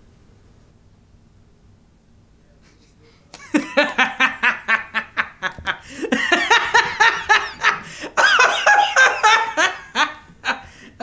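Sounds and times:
man laughing heartily: 2.6s - 11.0s.

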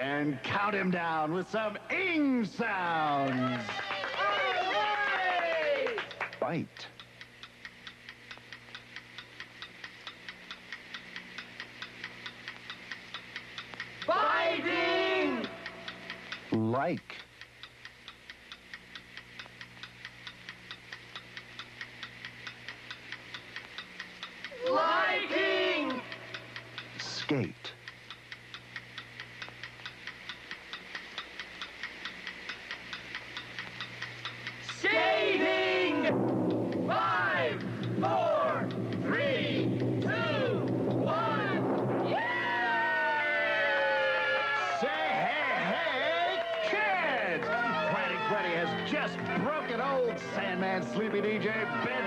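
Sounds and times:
faint steady hum: 0.0s - 52.0s
clock ticking: 5.8s - 42.1s, 46.8s - 52.0s.

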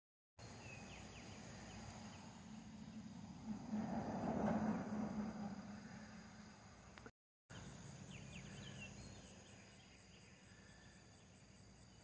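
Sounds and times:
steady hiss: 0.4s - 6.9s.

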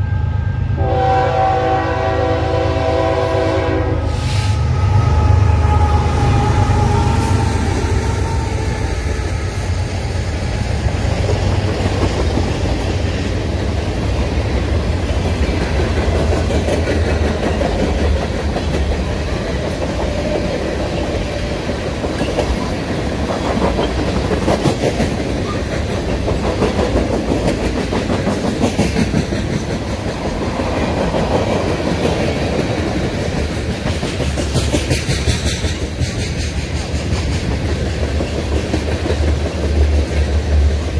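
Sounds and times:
train horn: 0.0s - 9.6s
diesel locomotive engine rumble: 0.0s - 40.9s
train wheels clickety-clack: 5.9s - 40.9s.

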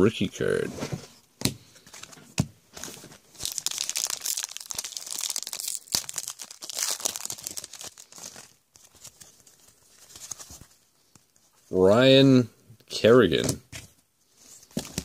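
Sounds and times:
foil wrapper tearing and crinkling: 3.3s - 8.9s.

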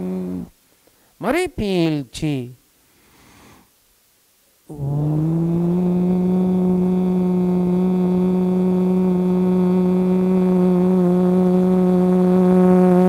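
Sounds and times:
man humming one pitch: 0.0s - 0.5s, 4.7s - 13.0s.

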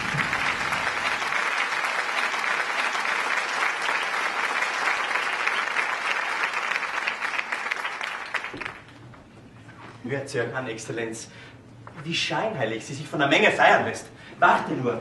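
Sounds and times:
audience applauding: 0.0s - 8.9s.

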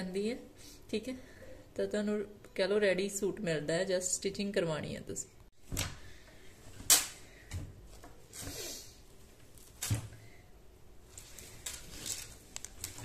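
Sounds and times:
cloth rustling: 11.0s - 13.0s.

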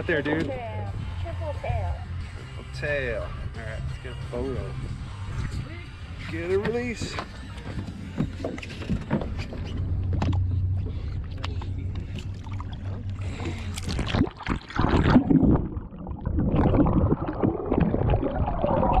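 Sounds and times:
water sloshing and splashing: 6.2s - 19.0s
low steady hum: 8.8s - 19.0s
underwater churning and bubbling: 9.8s - 19.0s.

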